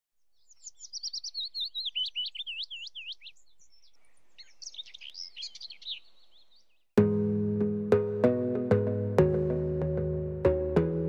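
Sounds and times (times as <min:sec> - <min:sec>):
small bird chirping: 0:00.2 - 0:06.9.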